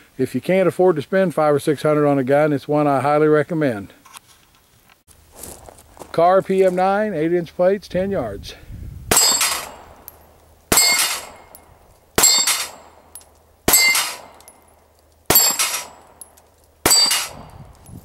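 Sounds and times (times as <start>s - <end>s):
pistol shots: 9.1s - 11.6s, 12.2s - 14.6s, 15.3s - 17.5s
steel plate target clanging: 9.1s - 17.6s.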